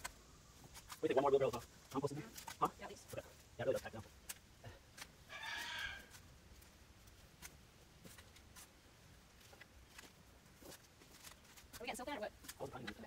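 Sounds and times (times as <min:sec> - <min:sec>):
chicken calling: 0:05.3 - 0:06.2.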